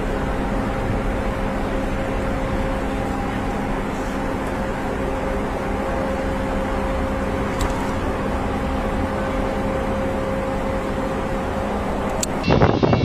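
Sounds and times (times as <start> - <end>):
faint engine whine: 0.0 - 13.0
jet engines roaring: 0.0 - 13.0
wind on microphone: 12.4 - 13.0.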